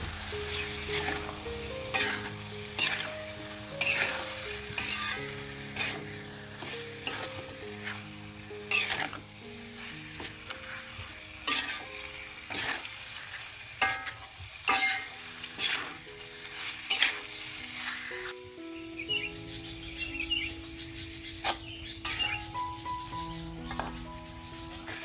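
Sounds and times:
food sizzling in a wok: 0:00.0 - 0:25.0
metal spatula scraping a wok: 0:00.4 - 0:03.1, 0:03.8 - 0:09.2, 0:09.8 - 0:18.3, 0:22.0 - 0:22.3.

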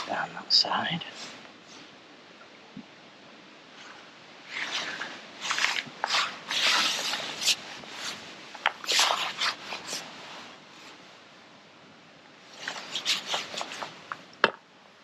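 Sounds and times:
clothing rustling and scraping: 0:01.1 - 0:02.0, 0:03.7 - 0:11.3, 0:12.4 - 0:14.3.

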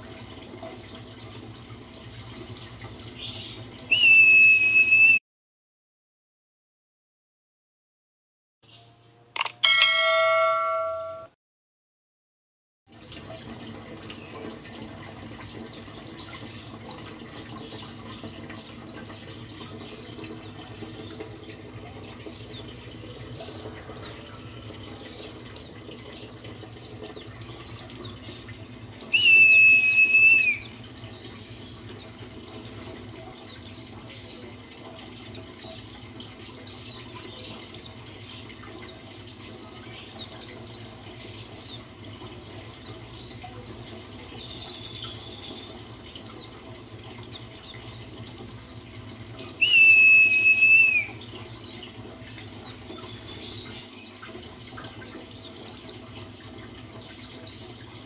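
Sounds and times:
bird whistle: 0:03.8 - 0:05.2, 0:29.1 - 0:30.7, 0:49.5 - 0:51.2
short electronic tone: 0:09.4 - 0:11.3
low hum: 0:09.4 - 0:11.4.

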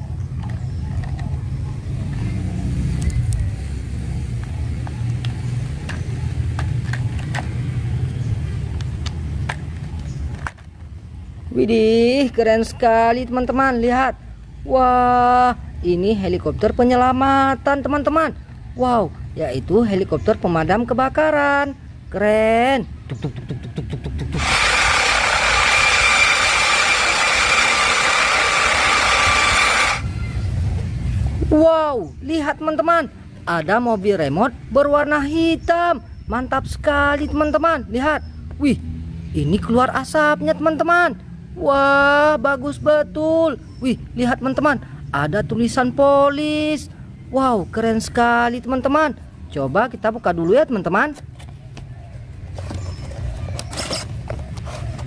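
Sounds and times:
helicopter turbine whine: 0:24.4 - 0:30.2.

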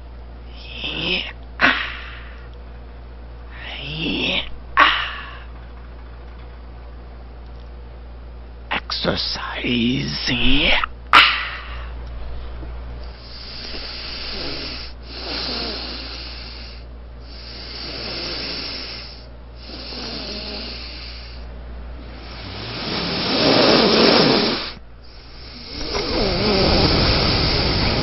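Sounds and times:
person breathing heavily: 0:00.5 - 0:02.5, 0:03.5 - 0:05.6, 0:11.2 - 0:12.0, 0:13.0 - 0:28.0.

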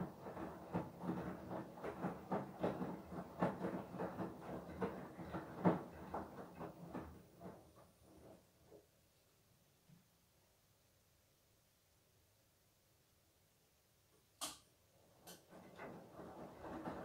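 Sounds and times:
washing machine tumbling: 0:00.0 - 0:08.8, 0:15.0 - 0:17.0.

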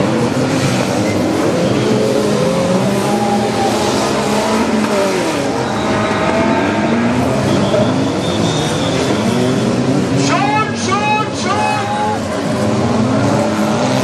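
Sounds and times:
race car engines revving: 0:00.0 - 0:14.0.

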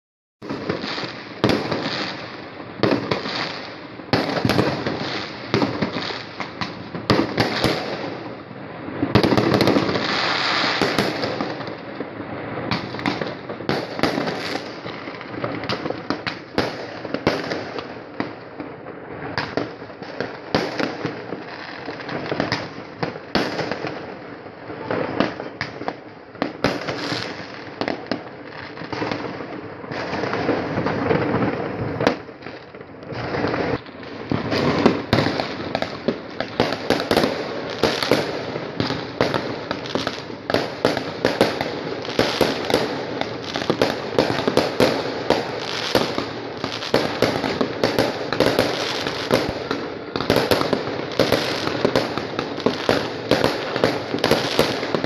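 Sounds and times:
fireworks bangs and crackling: 0:00.4 - 0:55.0.

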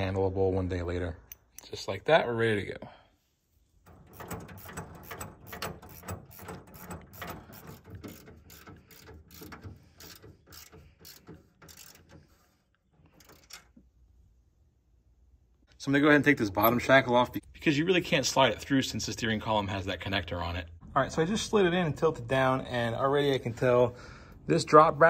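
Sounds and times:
ratchet wrench clicking: 0:03.9 - 0:12.1.

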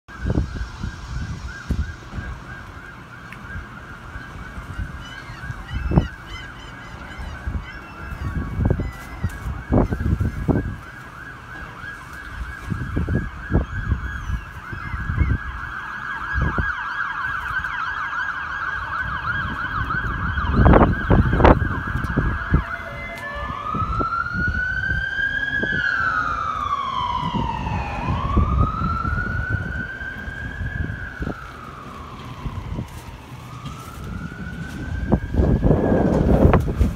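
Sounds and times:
emergency siren: 0:00.1 - 0:36.9.

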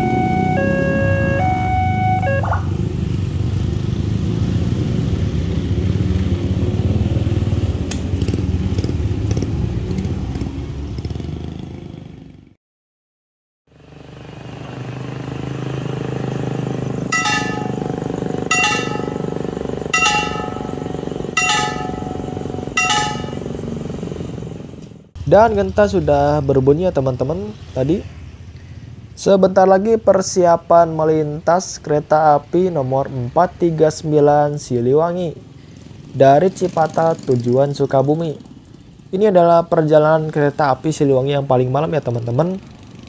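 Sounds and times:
level crossing warning bell: 0:00.0 - 0:02.8, 0:17.1 - 0:24.4
heavy vehicle rumble: 0:00.0 - 0:10.6, 0:14.0 - 0:26.6
traffic noise: 0:00.0 - 0:12.5, 0:13.8 - 0:43.0.

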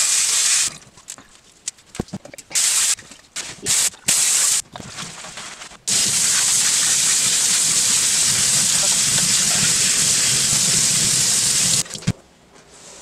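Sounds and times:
tap water gushing into sink: 0:05.9 - 0:12.1.

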